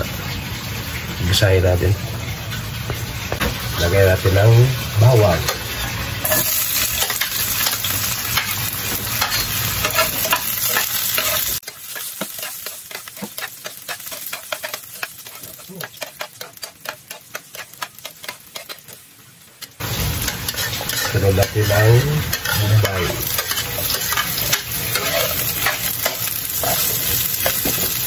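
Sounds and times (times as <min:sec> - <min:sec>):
garlic sizzling in oil: 0:00.0 - 0:28.0
spatula scraping and tapping pan: 0:05.4 - 0:19.0, 0:19.6 - 0:28.0.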